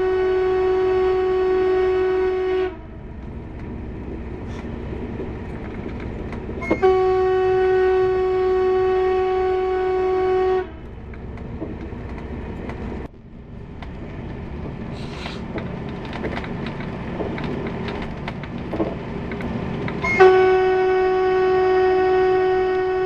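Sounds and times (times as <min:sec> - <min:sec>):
train horn: 0:00.0 - 0:03.2, 0:06.6 - 0:11.0, 0:20.0 - 0:23.0
train carriage rumble: 0:00.0 - 0:23.0
wheels clicking on rails: 0:03.0 - 0:08.2, 0:10.7 - 0:21.3.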